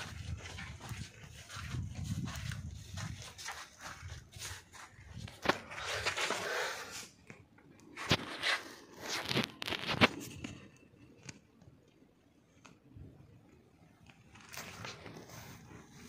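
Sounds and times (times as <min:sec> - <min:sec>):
scuffing footsteps: 0:00.0 - 0:06.8.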